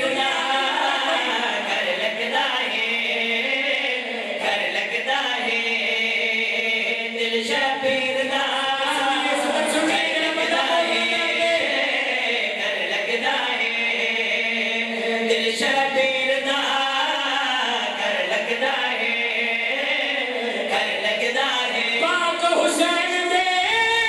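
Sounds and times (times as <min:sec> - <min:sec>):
men chanting in chorus: 0:00.0 - 0:24.0
lead voice holding long notes: 0:08.0 - 0:12.6.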